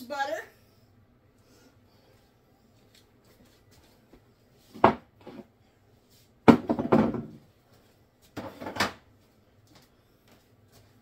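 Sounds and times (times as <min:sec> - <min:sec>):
kitchenware clattering bang: 0:06.5 - 0:07.4
kitchenware knocking on counter: 0:06.5 - 0:07.4.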